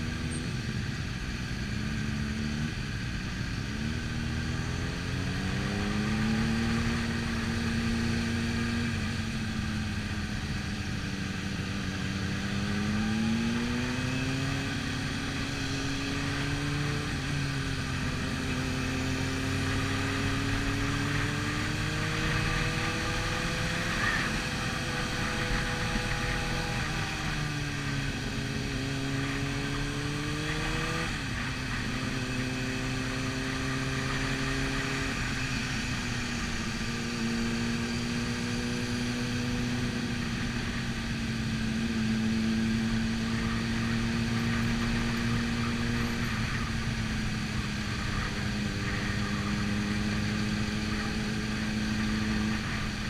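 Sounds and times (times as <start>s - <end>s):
motorcycle engine cruising: 0.0s - 53.0s
wind and road rush: 0.0s - 53.0s.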